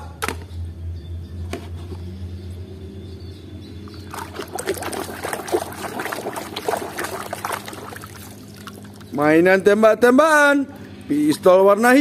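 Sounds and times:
low steady hum: 0.0s - 12.0s
hand splashing in water: 4.0s - 9.0s.

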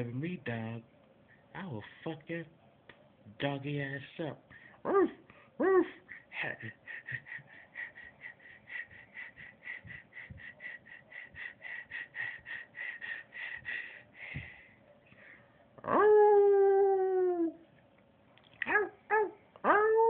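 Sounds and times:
dog panting: 6.1s - 14.7s.

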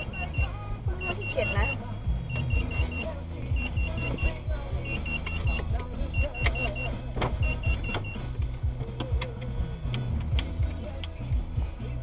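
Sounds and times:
high electronic beeps: 0.0s - 8.3s
car engine and road rumble: 0.0s - 12.0s.

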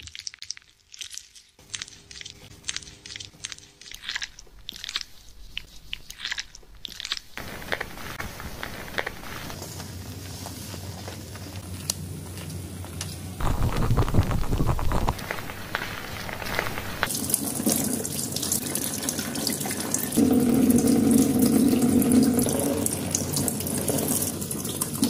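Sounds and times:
gloved hands rubbing wet hair: 7.3s - 11.7s, 13.4s - 17.1s.

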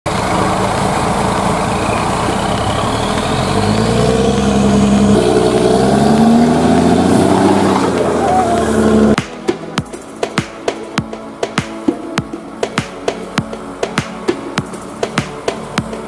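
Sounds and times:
air compressor running: 0.1s - 7.6s
heavy diesel engines under load: 0.1s - 9.2s.

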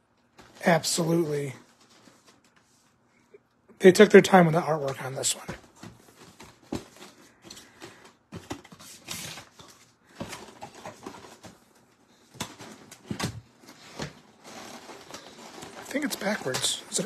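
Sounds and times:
cardboard and plastic rustling: 0.2s - 3.0s, 4.6s - 17.0s.

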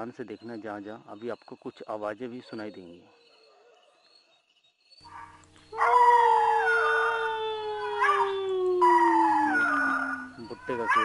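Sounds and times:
dogs howling: 5.1s - 11.0s.

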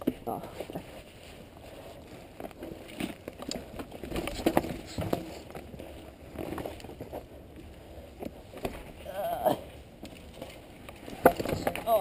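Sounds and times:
bike tyres rolling over dirt: 0.0s - 12.0s
bike clattering: 9.7s - 12.0s.

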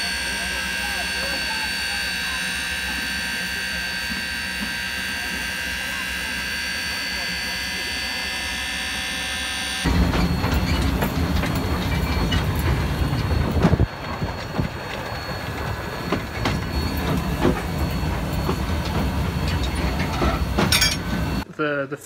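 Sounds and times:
steam locomotive rumbling: 0.0s - 21.5s
metal clanks: 16.0s - 21.4s.

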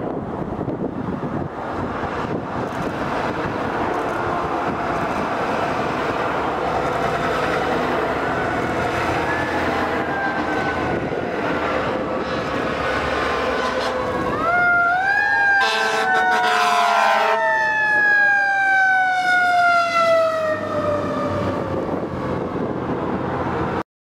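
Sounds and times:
fire trucks driving by: 0.0s - 23.8s.

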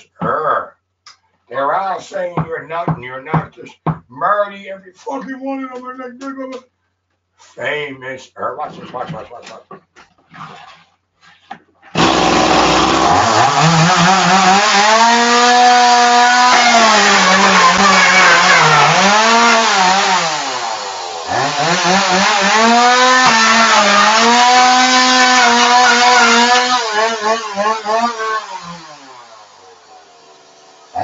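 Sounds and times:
chainsaw engine revving: 12.0s - 31.0s.

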